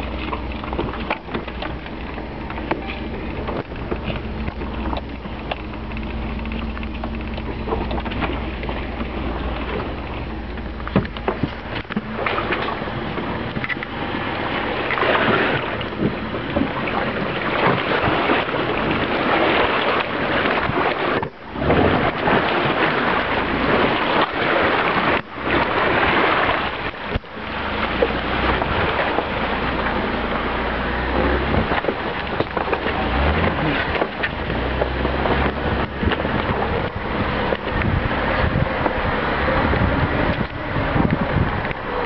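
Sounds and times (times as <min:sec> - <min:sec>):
engine low rumble: 0:00.0 - 0:42.0
water splashing around tyres: 0:00.0 - 0:42.0
wind on microphone: 0:00.0 - 0:42.0.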